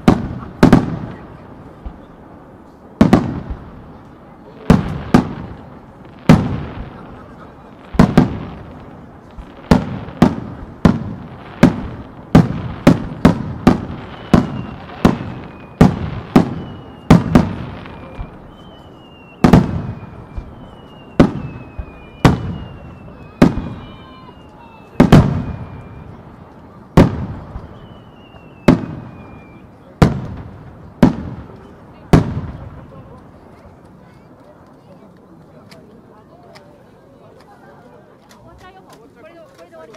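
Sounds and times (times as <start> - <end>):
firework whistles: 7.8 - 29.9.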